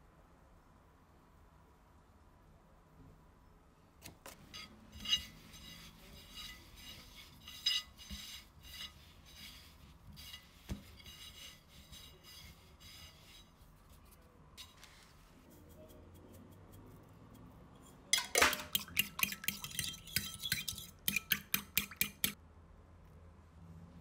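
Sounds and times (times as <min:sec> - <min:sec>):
hands rolling food on plate: 0:04.0 - 0:22.4
metal spoon clinking on plate: 0:18.1 - 0:22.4.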